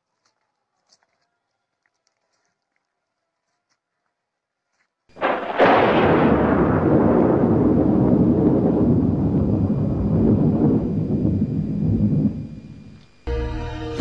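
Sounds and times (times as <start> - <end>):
thunder crash: 5.2 - 13.0
rolling rumble: 5.2 - 13.2.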